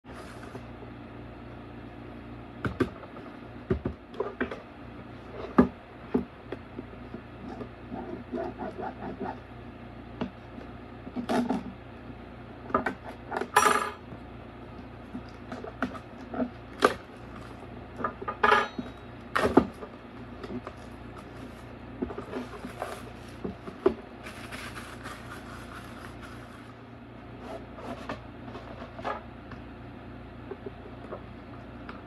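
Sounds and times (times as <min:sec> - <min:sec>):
steady low hum: 0:00.0 - 0:32.0
plastic crinkling: 0:20.4 - 0:26.7
plastic wrap tearing: 0:24.2 - 0:26.7.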